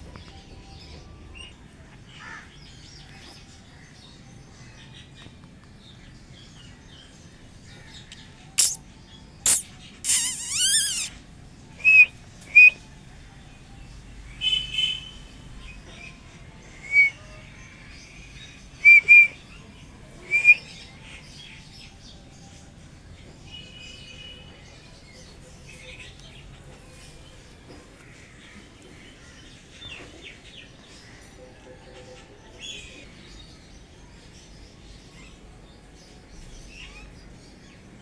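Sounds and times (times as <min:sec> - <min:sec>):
small birds chirping: 0:02.9 - 0:12.8
bird trill: 0:08.6 - 0:08.8, 0:09.5 - 0:11.1, 0:16.8 - 0:17.2, 0:18.8 - 0:19.4, 0:20.3 - 0:20.6.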